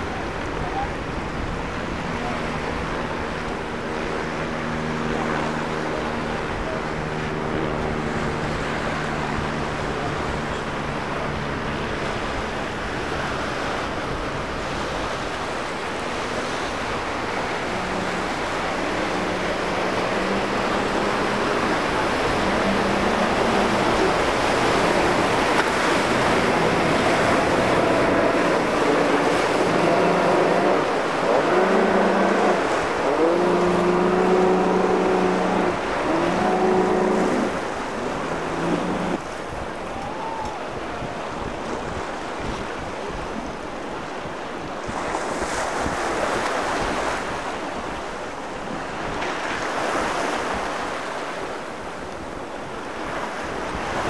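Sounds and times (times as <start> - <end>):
waves breaking: 0.0 - 54.0
outboard motor revving: 1.4 - 39.4.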